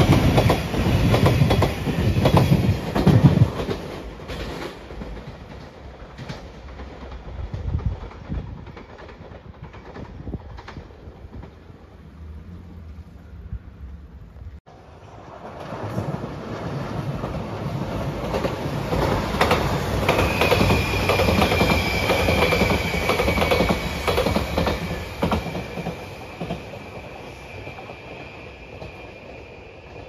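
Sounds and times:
train rumble: 0.0 - 30.0
wheels clacking over rail joints: 15.3 - 26.8.

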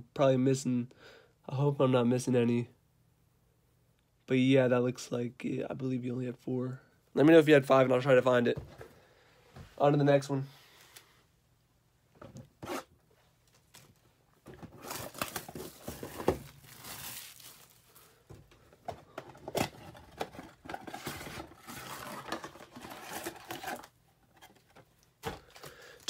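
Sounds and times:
packaging rustling and crinkling: 13.4 - 26.0.

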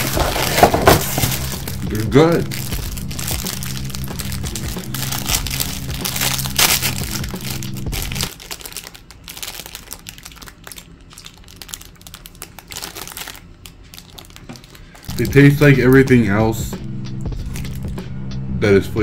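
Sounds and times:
low hum: 0.0 - 8.3
plastic wrapper crinkling: 0.0 - 15.4, 17.4 - 18.0.

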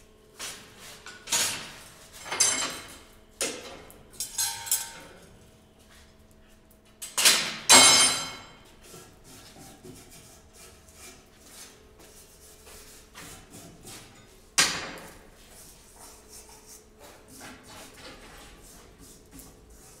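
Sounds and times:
metal clanking on steel table: 4.2 - 5.2.

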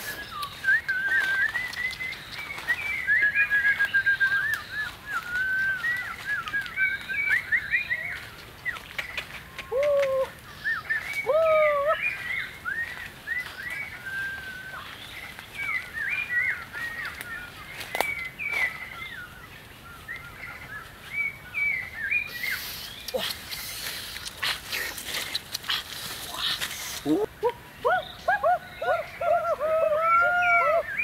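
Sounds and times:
footsteps through dry leaves: 0.0 - 9.6, 10.4 - 21.4
forest birds chirping: 0.0 - 31.0.

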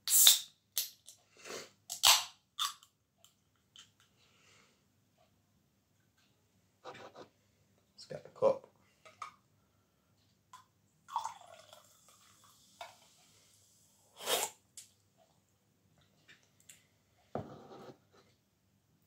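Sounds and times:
soda pouring into a glass: 11.1 - 13.1
loud slurp: 14.2 - 14.5.

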